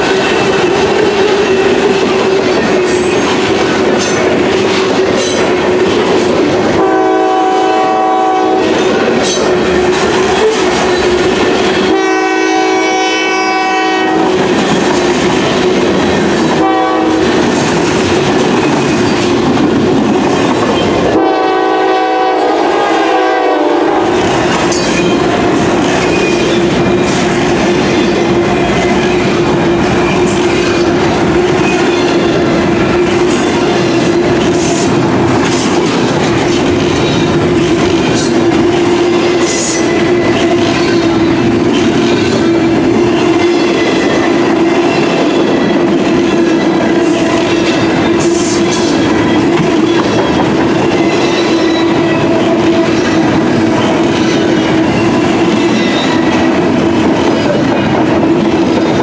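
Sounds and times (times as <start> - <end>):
moving train rumble and wheel clatter: 0.0 - 59.0
locomotive horn: 6.7 - 8.9, 11.7 - 14.4, 16.5 - 17.4, 21.1 - 24.3.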